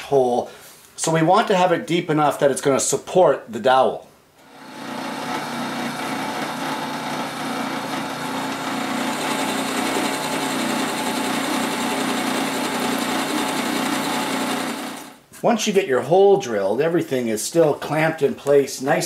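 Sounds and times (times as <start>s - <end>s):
drill bit scraping wood: 4.4s - 15.1s
drill press motor hum: 4.4s - 15.2s.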